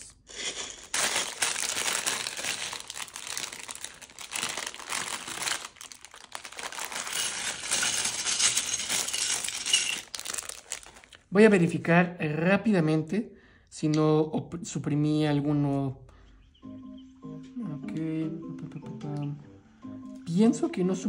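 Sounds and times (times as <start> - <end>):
plastic bag crinkling: 0.0 - 11.3.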